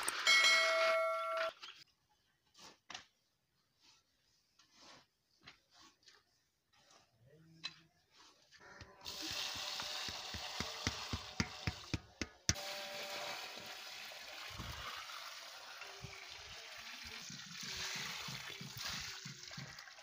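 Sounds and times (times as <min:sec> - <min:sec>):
water pouring onto clay: 0:09.0 - 0:12.0, 0:13.2 - 0:20.0.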